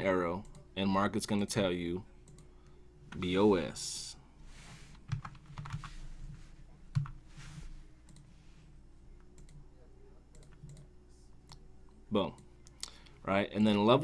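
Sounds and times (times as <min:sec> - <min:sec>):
faint steady hum: 0:00.0 - 0:14.0
keyboard keys tapping: 0:05.1 - 0:05.9, 0:06.9 - 0:07.2.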